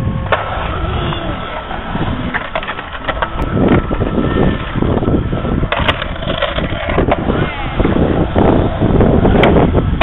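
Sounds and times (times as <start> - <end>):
skateboard rolling: 0.0 - 10.0
skateboard clacks and knocks: 5.6 - 7.3.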